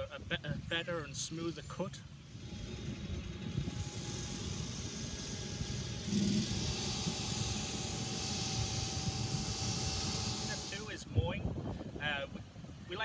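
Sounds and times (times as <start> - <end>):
thin steady whine: 0.0 - 13.0
mower engine hum: 1.6 - 11.2.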